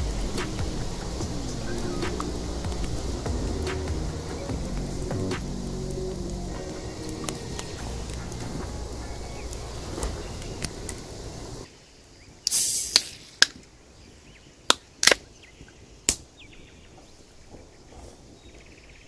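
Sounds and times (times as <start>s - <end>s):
steady background sound: 0.0s - 12.4s.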